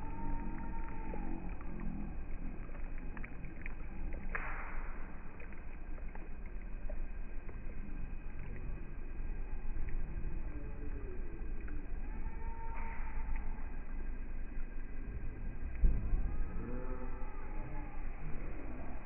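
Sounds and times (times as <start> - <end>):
faint clicks: 0.0 - 8.7, 9.7 - 14.1
wind rumble on microphone: 0.0 - 19.0.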